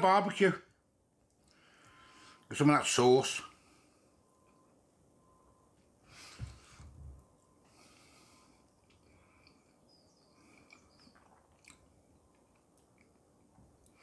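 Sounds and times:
faint chewing: 0:08.6 - 0:14.0
small mouth clicks: 0:10.6 - 0:11.9.

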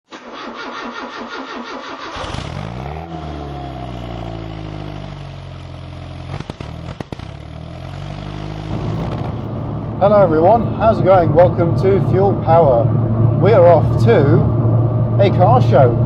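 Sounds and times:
car engine starting and idling: 0:00.0 - 0:16.0.

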